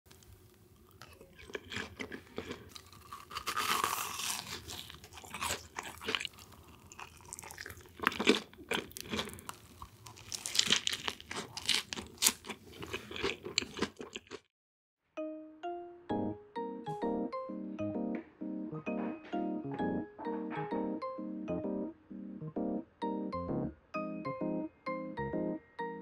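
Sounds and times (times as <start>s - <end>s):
chewing crisp fried food: 0.2s - 14.5s.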